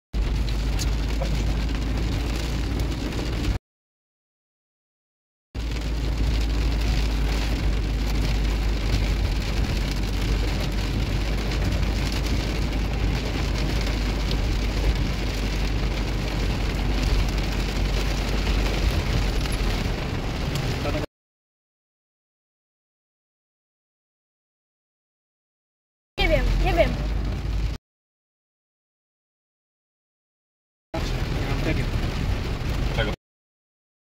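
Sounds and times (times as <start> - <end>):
heavy rain on car: 0.2 - 3.6, 5.6 - 21.1, 26.2 - 27.8, 31.0 - 33.2
steady low rumble: 5.6 - 21.0.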